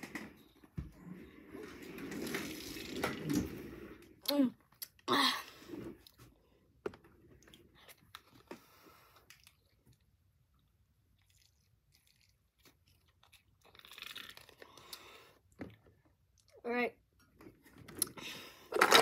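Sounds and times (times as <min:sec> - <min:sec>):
chewing with small crunches: 0:07.3 - 0:16.6.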